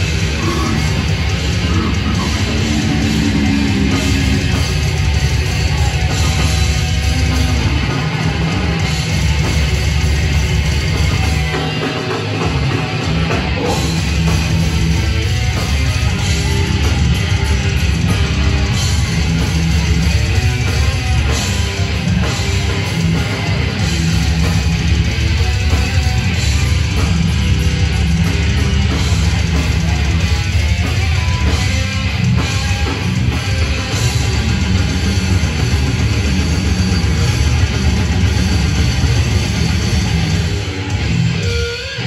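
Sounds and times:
death metal band playing live: 0:00.0 - 0:42.0.

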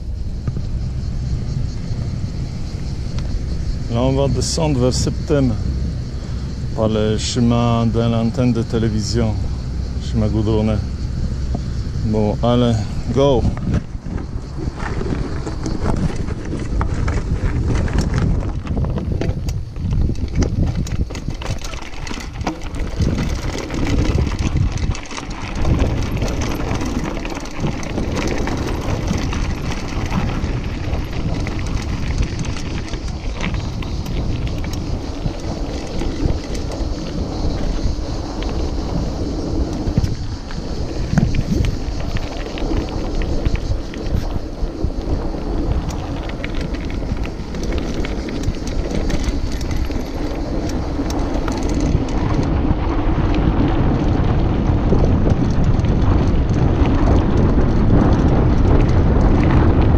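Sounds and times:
wind rumble on microphone: 0:00.0 - 0:59.9
bike clicks and rattles: 0:01.9 - 0:59.9.

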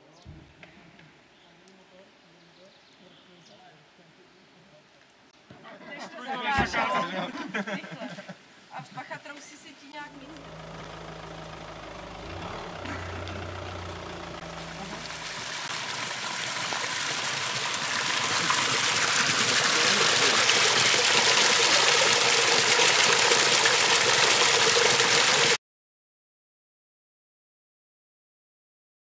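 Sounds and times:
low steady hum: 0:10.0 - 0:24.7
water pouring into wooden trough: 0:10.5 - 0:25.6.

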